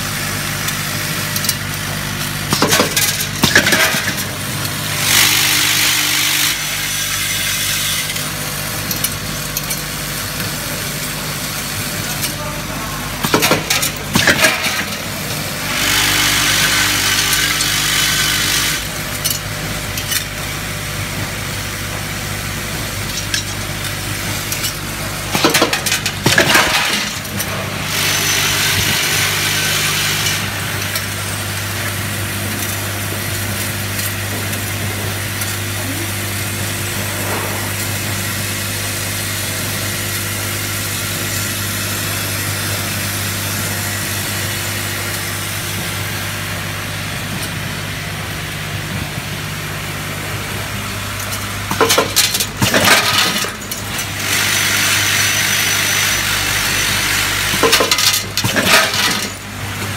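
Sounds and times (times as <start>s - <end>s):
small parts rattling on metal: 57.5s - 59.4s.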